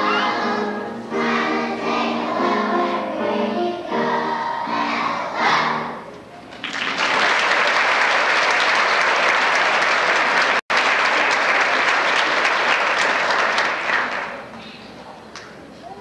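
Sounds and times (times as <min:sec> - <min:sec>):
audience applauding: 0:06.5 - 0:14.5.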